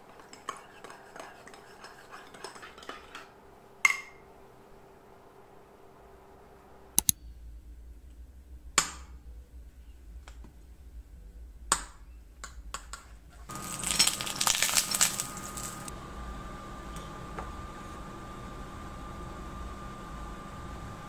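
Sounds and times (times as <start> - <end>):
spoon scraping and stirring in bowl: 0.0 - 3.3, 13.5 - 15.9
faint steady hum: 0.0 - 21.0.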